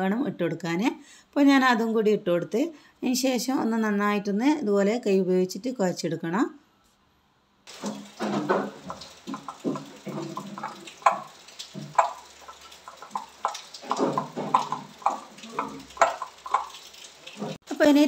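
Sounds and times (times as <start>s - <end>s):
wet squishing of kneaded food: 7.7s - 17.6s.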